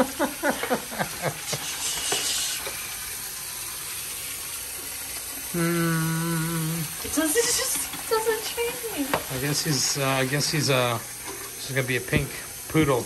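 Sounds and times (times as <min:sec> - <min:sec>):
tap running into metal sink: 0:00.0 - 0:03.0, 0:07.0 - 0:13.0
person humming: 0:05.5 - 0:07.0.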